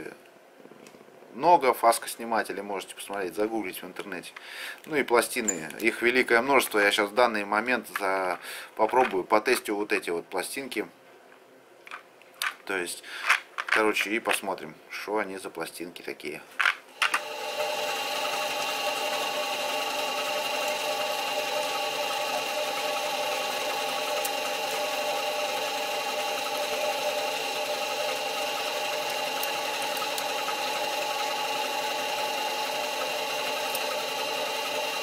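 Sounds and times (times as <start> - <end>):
metal lathe humming and whining: 17.1 - 35.0.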